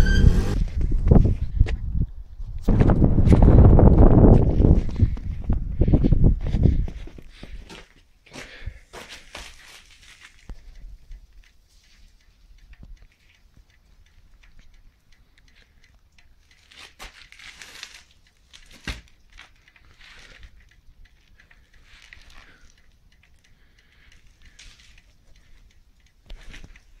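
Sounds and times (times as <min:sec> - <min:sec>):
rustling and handling noise: 0:09.0 - 0:10.5, 0:16.5 - 0:22.8.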